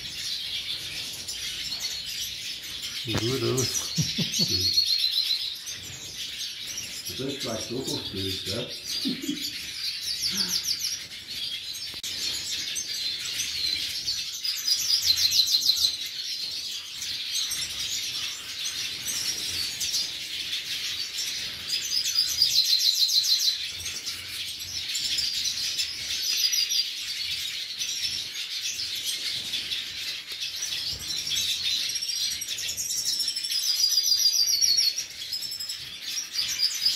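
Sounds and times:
finches twittering: 0.0s - 15.9s.

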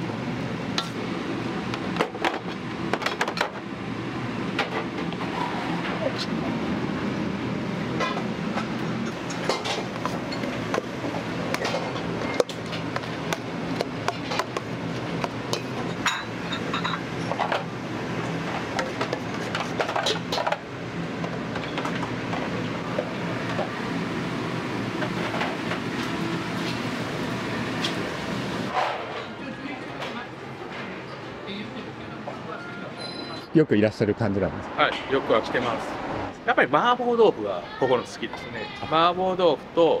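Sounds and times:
low roar of burners and hood: 0.0s - 40.0s
utensils and dishes clattering: 8.0s - 10.8s, 11.5s - 12.9s, 15.2s - 17.7s, 18.7s - 20.6s.

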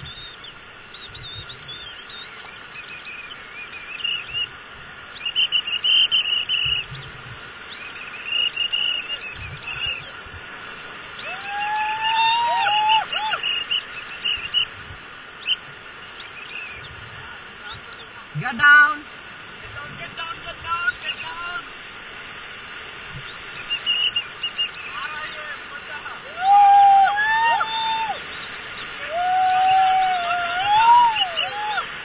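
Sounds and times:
high chirping calls: 0.0s - 10.2s, 13.3s - 14.8s, 23.2s - 25.7s
white water rushing: 0.0s - 32.0s
rising and falling whistles: 29.1s - 31.8s.

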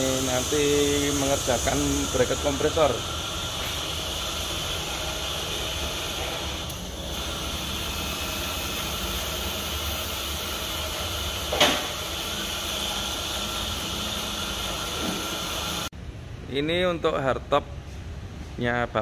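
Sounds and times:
mechanical hum and hiss: 0.0s - 19.0s.

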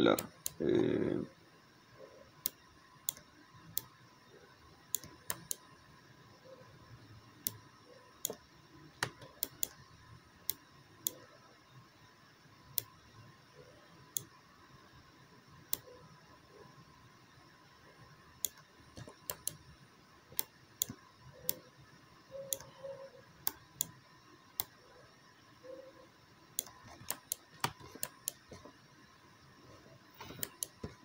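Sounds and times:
computer mouse button clicking: 2.4s - 3.2s, 4.9s - 5.6s, 8.2s - 8.4s, 9.0s - 9.8s, 18.4s - 19.6s, 22.4s - 22.8s, 26.6s - 28.6s, 30.2s - 31.0s.

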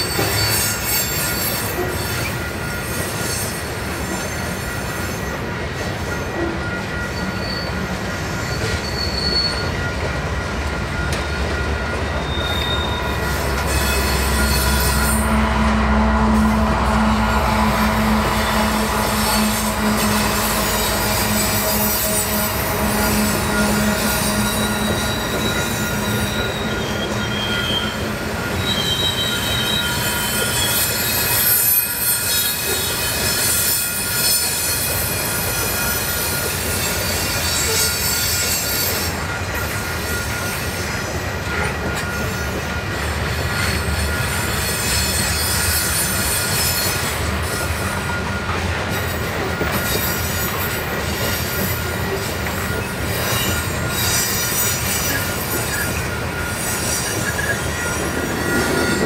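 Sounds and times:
train wheels squealing: 0.0s - 59.0s.

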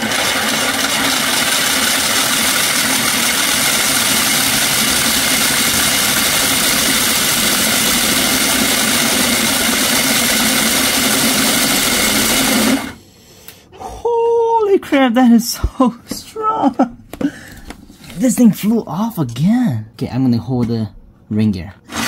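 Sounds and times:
gearbox whirring drone: 0.0s - 13.0s.

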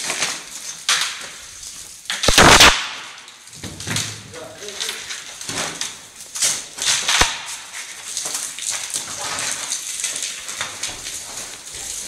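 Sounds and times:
rubble and debris clattering: 3.2s - 12.0s.

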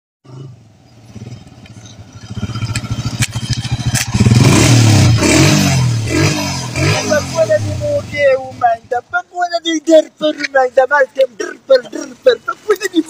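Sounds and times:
small motorcycle engine puttering: 1.0s - 4.6s.

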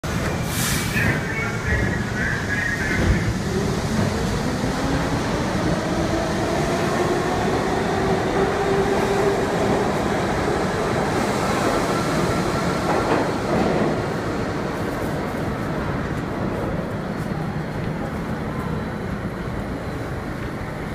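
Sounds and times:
train wheels rumbling on rails: 0.0s - 20.9s.

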